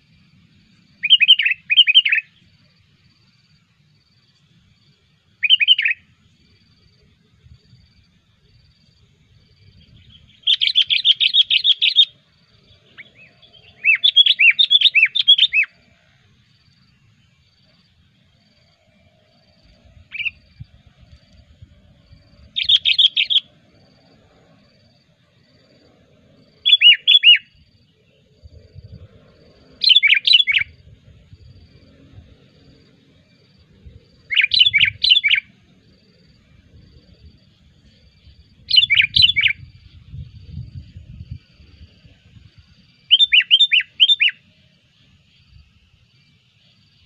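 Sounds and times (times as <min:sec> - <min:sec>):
bird chattering and whistling: 0:01.0 - 0:02.3, 0:05.4 - 0:06.0, 0:10.1 - 0:12.1, 0:12.9 - 0:15.7, 0:20.1 - 0:20.4, 0:22.6 - 0:23.5, 0:26.7 - 0:27.5, 0:29.8 - 0:30.8, 0:34.3 - 0:35.5, 0:38.7 - 0:39.6, 0:43.1 - 0:44.4.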